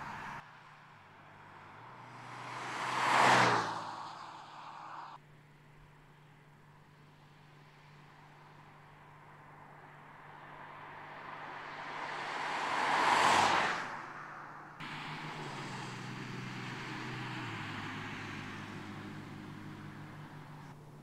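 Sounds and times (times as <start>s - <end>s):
car driving past: 0.0s - 5.2s, 10.2s - 20.8s
steady engine drone: 14.8s - 21.0s.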